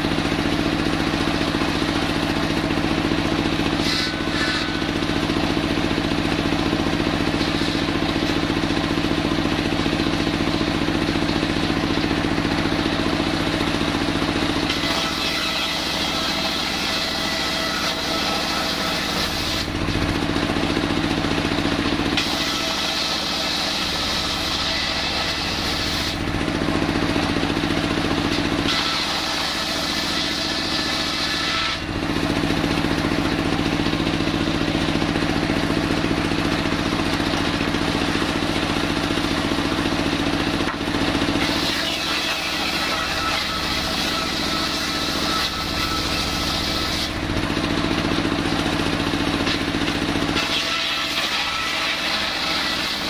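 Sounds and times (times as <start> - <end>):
diesel engine running: 0.0 - 14.8, 19.6 - 22.2, 23.9 - 28.7, 31.8 - 41.6, 43.4 - 50.4
circular saw cutting wood: 0.0 - 53.0.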